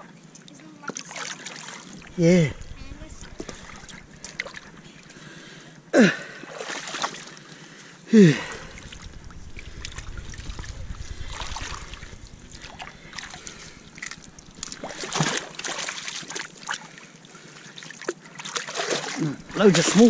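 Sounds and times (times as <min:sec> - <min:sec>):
seawater sloshing and trickling: 0:00.8 - 0:05.2, 0:06.5 - 0:07.6, 0:11.3 - 0:20.0
low rumble: 0:02.0 - 0:05.2, 0:08.2 - 0:15.8, 0:19.3 - 0:20.0
small splashes and knocks: 0:17.8 - 0:19.4.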